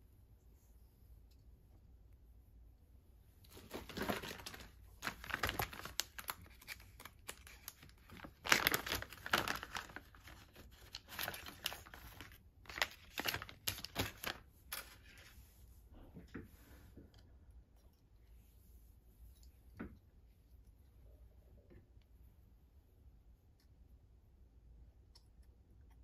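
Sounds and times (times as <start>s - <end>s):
plastic bag crinkling: 3.5s - 15.3s.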